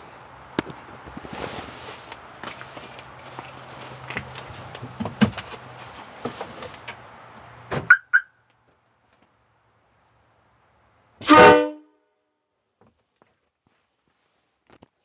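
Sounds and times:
train horn blast: 11.2 - 12.1.

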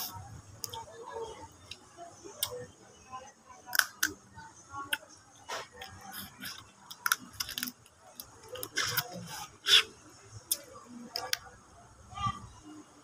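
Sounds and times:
crab shell cracking in mouth: 3.7 - 4.1
chewing: 4.9 - 9.9.

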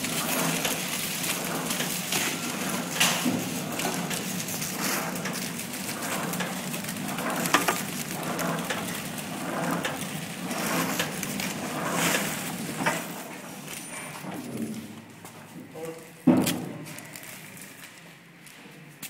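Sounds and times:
rustling clattering film wrapping: 0.0 - 13.2, 16.8 - 18.0
wrapping machine motor hum: 0.0 - 13.8.

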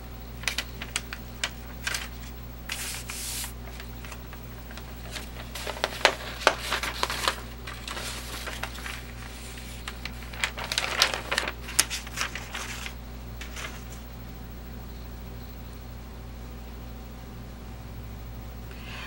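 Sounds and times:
paper crinkling and rustling: 0.4 - 14.1.

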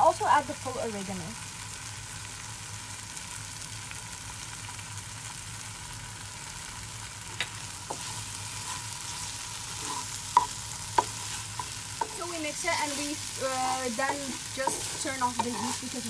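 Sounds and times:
vegetables sizzling in a frying pan: 0.0 - 16.0
wooden spatula tapping a pan: 10.3 - 12.4, 13.8 - 15.7.

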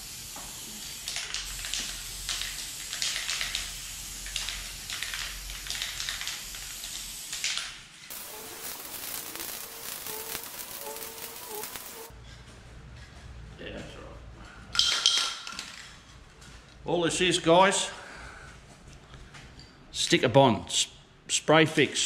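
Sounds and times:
aerosol spray can hissing: 0.0 - 7.4, 8.1 - 12.1.

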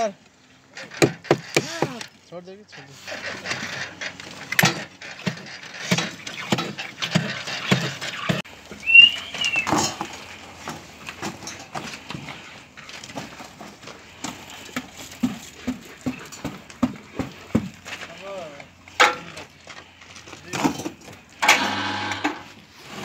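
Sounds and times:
concrete knocks and scrapes: 2.9 - 8.5, 9.6 - 18.1.

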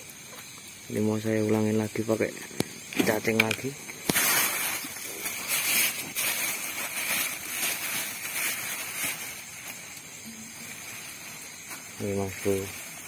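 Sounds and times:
plastic bag rustling: 3.0 - 13.0.

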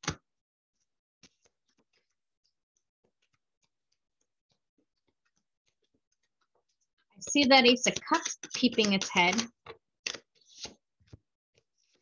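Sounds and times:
cards clicking and tapping: 7.9 - 11.2.

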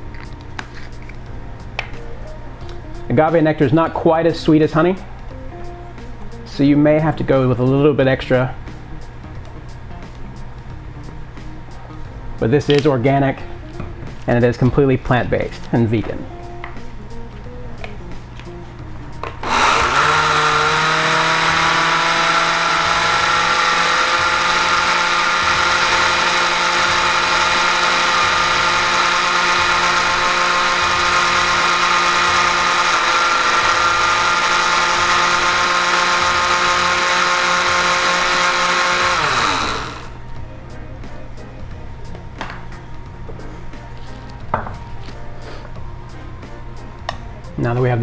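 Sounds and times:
blender motor whining: 19.2 - 40.2.

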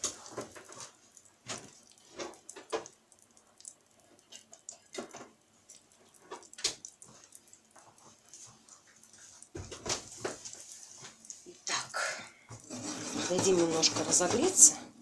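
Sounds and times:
butter crackling in hot oil: 0.0 - 14.7.

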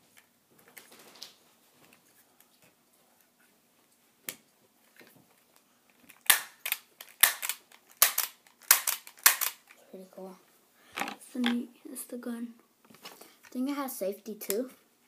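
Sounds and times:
pistol slide racking clacks: 6.2 - 9.6.

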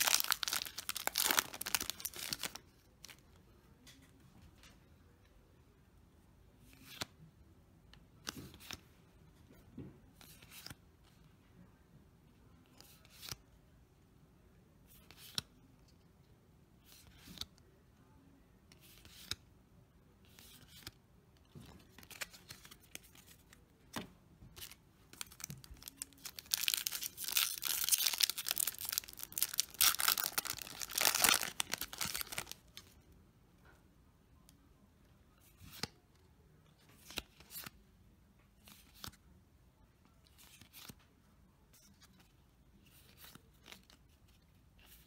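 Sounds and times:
foil pack tearing and crinkling: 0.0 - 2.4, 25.8 - 32.5.

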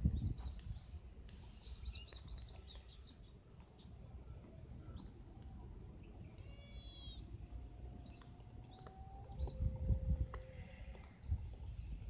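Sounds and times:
small bird chirping: 0.1 - 4.0, 6.2 - 9.7
low rumble: 7.3 - 12.0.

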